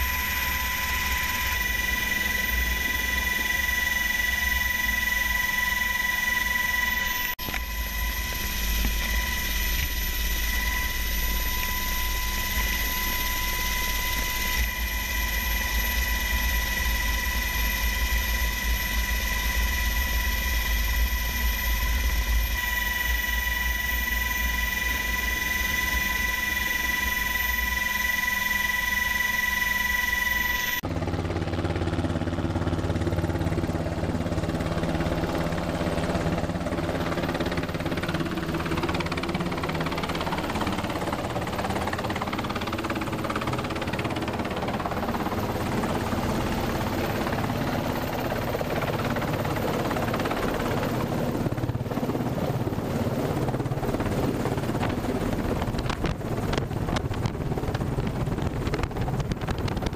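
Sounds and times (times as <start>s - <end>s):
high-pitched whines: 0.0s - 30.8s
helicopter approaching outside: 0.0s - 59.9s
helicopter rotor and engine rumble: 0.0s - 59.9s.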